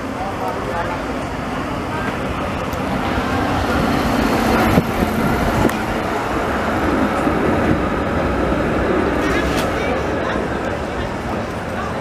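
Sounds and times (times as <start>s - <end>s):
tram wheels rumbling on rails: 0.0s - 12.0s.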